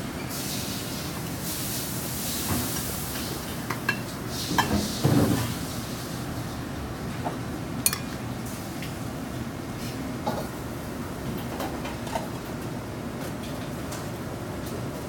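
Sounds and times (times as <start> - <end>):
kitchen background noise: 0.2 - 9.0.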